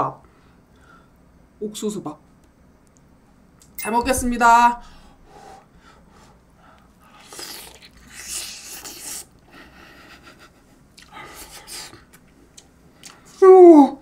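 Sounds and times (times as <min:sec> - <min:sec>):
person biting and chewing meat: 0:07.1 - 0:09.4, 0:10.9 - 0:13.3.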